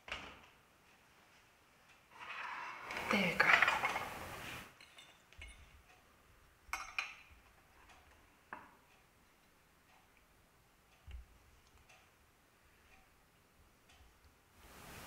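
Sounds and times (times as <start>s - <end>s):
faint light ticks: 7.8s - 13.2s, 13.8s - 14.4s.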